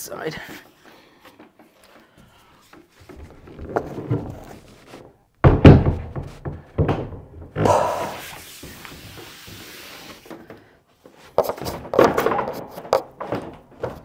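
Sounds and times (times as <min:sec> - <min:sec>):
loud thunk: 0:05.4 - 0:08.1
wooden bed frame knocks: 0:05.4 - 0:08.1.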